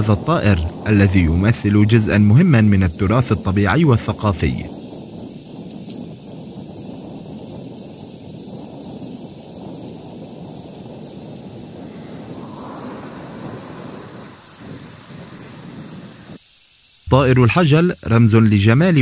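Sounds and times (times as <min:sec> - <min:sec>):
low rumble: 0:00.0 - 0:03.7, 0:09.8 - 0:16.4
high cricket-like chirp: 0:00.0 - 0:19.0.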